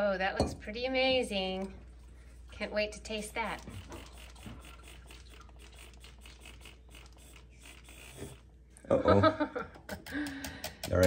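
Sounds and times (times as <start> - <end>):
milk frother whirring: 3.1 - 8.6.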